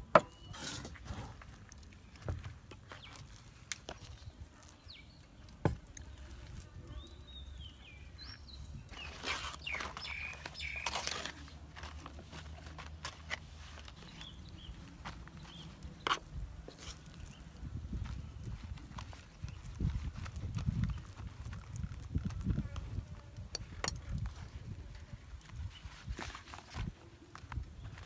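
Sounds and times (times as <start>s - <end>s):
rustling and scraping: 0.2s - 7.2s, 8.2s - 28.0s
birds chirping: 1.7s - 11.3s, 13.8s - 19.8s.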